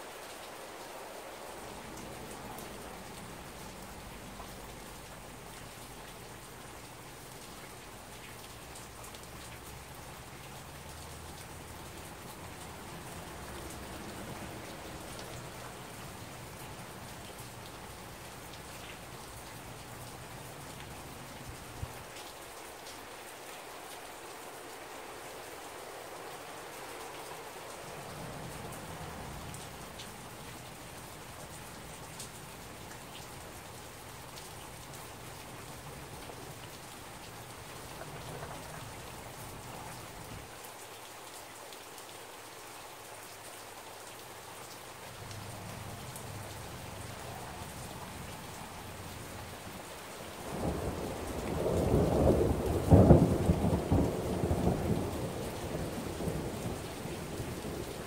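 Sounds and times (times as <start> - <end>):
steady rain falling: 0.0 - 58.0
thunder clap and rumble: 50.5 - 57.9.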